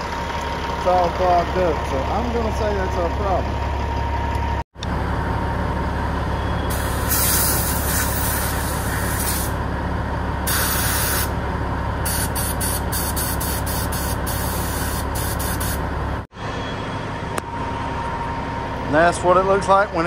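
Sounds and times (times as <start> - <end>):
air blow gun hissing: 6.7 - 9.6, 10.5 - 11.3, 12.1 - 15.8.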